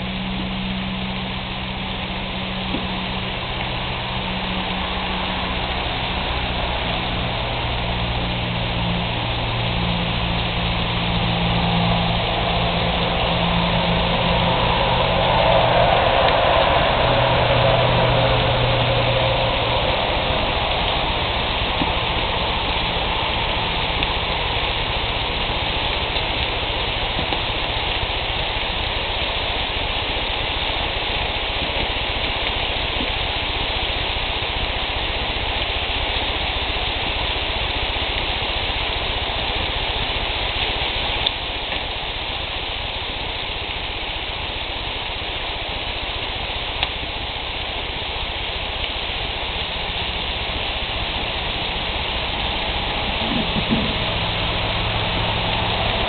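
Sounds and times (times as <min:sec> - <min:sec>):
low rumble: 0:00.0 - 0:32.8, 0:49.2 - 0:56.0.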